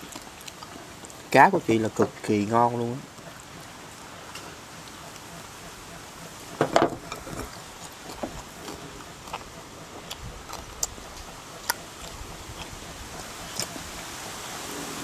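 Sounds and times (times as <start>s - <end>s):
crunching of fried fish: 0.0s - 1.3s, 7.0s - 14.1s.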